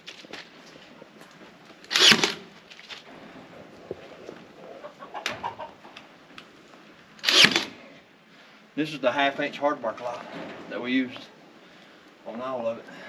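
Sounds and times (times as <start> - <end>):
stapler firing staples: 1.9 - 2.4, 7.2 - 7.7.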